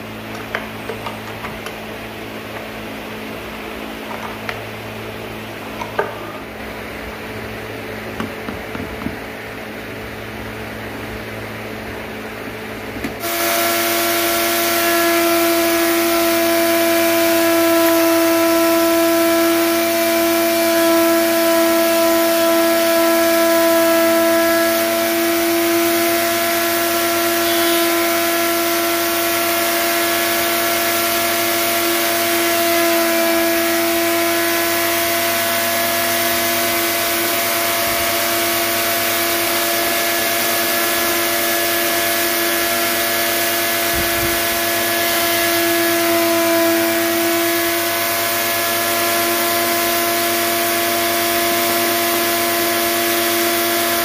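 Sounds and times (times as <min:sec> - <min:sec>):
electric router whining: 0:11.3 - 0:54.0.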